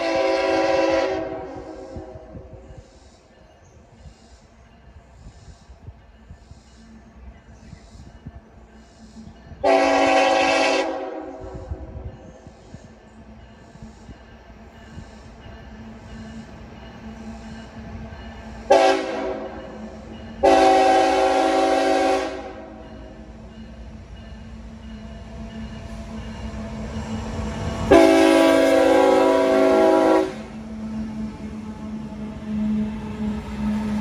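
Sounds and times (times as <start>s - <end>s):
locomotive air horn blasts: 0.0s - 2.5s, 9.6s - 12.0s, 18.7s - 22.9s, 27.9s - 30.6s
locomotive engine drone: 0.0s - 34.0s
train rumble: 0.0s - 34.0s.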